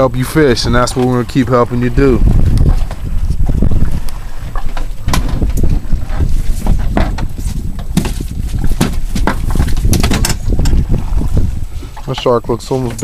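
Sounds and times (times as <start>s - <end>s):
wind rumble on microphone: 0.0s - 13.0s
shark knocking and slapping on deck: 4.6s - 5.8s, 6.6s - 10.8s.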